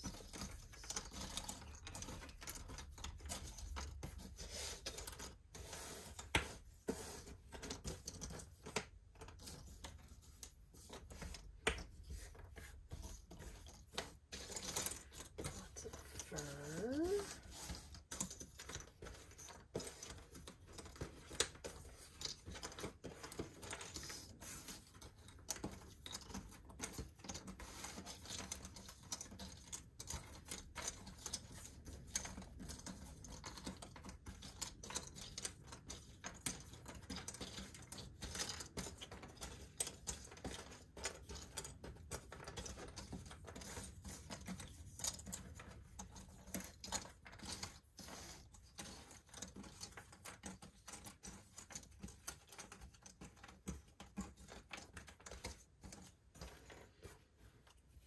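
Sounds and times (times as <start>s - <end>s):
puzzle pieces clicking and tapping: 0.0s - 5.3s, 13.0s - 47.8s.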